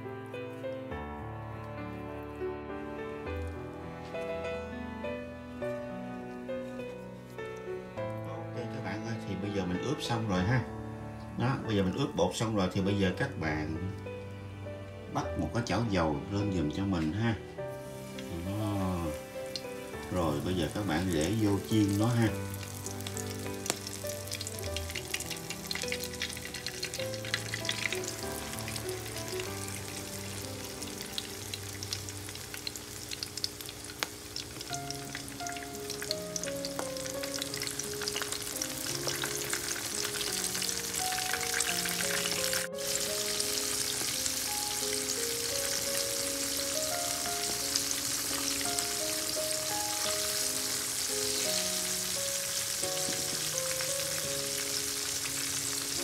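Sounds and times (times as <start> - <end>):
light instrumental music: 0.0 - 56.0
oysters deep-frying in oil: 15.4 - 56.0.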